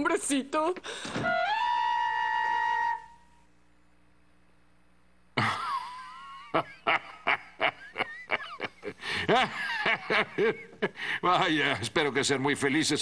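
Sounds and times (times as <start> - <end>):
man laughing: 5.4 - 11.1.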